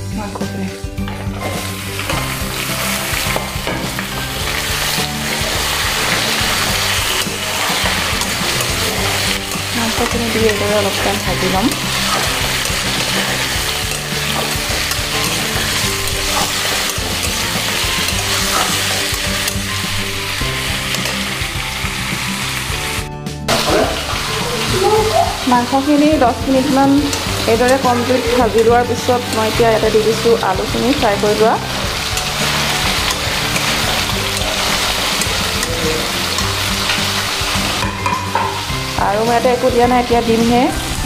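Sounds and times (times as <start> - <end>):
low background music: 0.0 - 41.0
steel spatula scraping pan: 1.1 - 21.4, 30.9 - 38.8
chicken sizzling in hot oil: 1.1 - 41.0.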